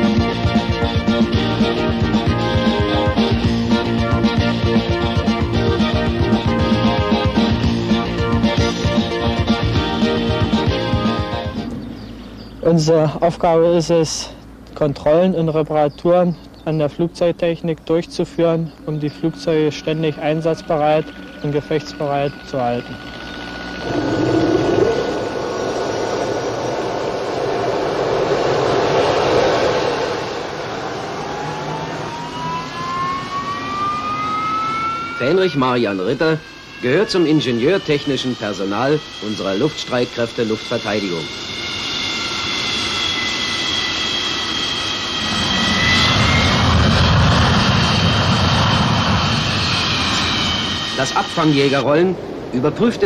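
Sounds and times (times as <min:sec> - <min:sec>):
deep engine rumble: 0:00.0 - 0:32.3, 0:39.9 - 0:51.1
faint high whine: 0:16.7 - 0:53.0
jet engine rushing: 0:19.3 - 0:53.0.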